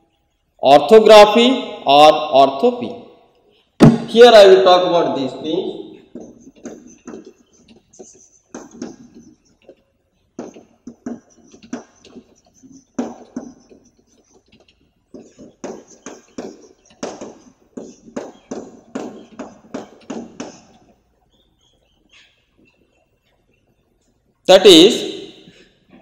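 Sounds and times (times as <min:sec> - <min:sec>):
chalk writing on blackboard: 0:06.1 - 0:09.6, 0:10.4 - 0:20.8.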